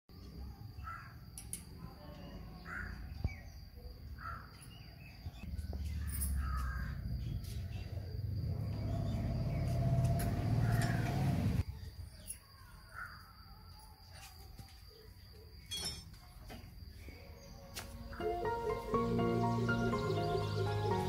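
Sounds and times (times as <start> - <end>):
bird calling: 5.8 - 11.6.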